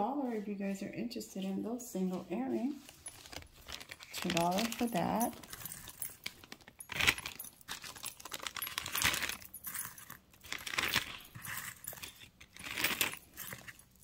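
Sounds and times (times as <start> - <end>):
metal earrings clinking: 2.8 - 14.0.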